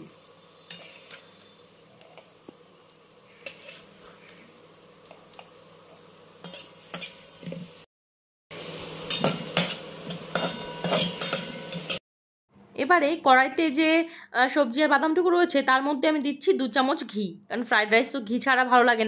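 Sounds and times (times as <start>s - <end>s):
oil sizzling: 0.0s - 7.9s, 8.5s - 12.0s
metal spatula scraping a pan: 0.6s - 1.6s, 3.3s - 4.5s, 6.4s - 7.6s, 9.1s - 12.0s.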